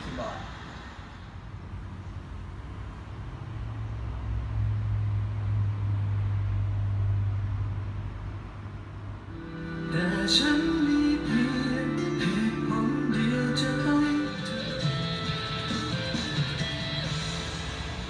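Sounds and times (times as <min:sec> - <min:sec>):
music: 0:09.3 - 0:18.0.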